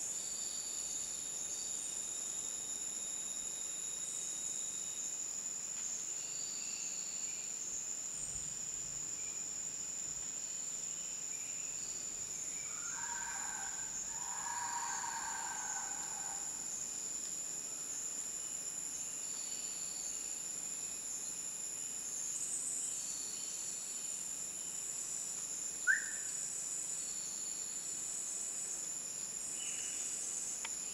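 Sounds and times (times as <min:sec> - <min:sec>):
short insect calls: 0:10.9 - 0:20.4, 0:24.7 - 0:28.4.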